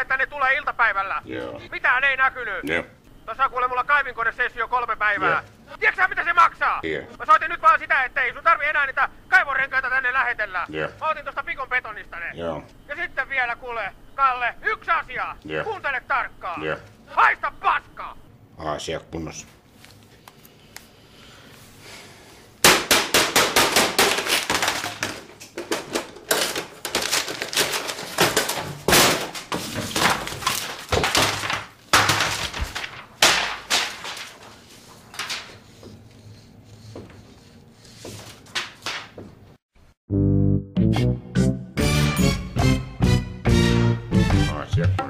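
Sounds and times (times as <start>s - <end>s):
crashes thuds and breaking: 22.6s - 34.4s.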